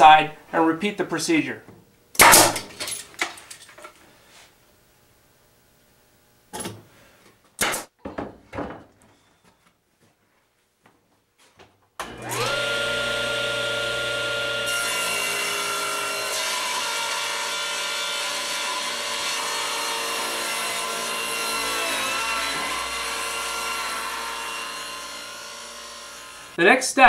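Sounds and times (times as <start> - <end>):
table saw cutting wood: 12.0 - 26.6.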